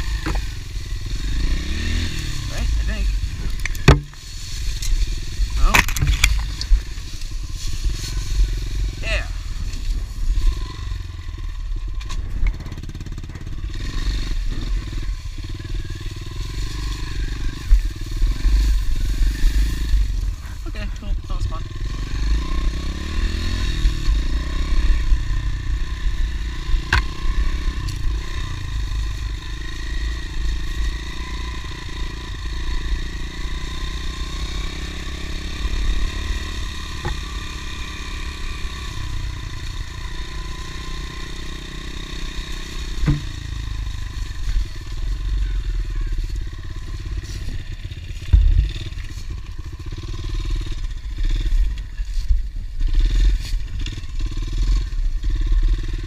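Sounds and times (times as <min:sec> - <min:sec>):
constant low rumble: 0:00.0 - 0:56.0
dirt bike engine running: 0:00.0 - 0:56.0
bike knocking over rough ground: 0:03.5 - 0:04.3, 0:48.2 - 0:49.4.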